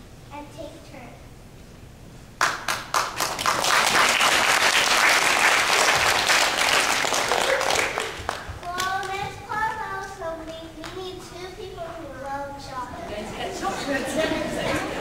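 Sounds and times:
audience applauding: 0:02.4 - 0:09.2.

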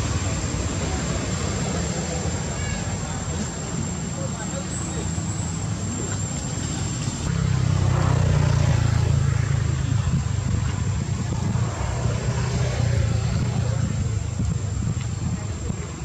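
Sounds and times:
low engine hum: 0:05.6 - 0:16.0.

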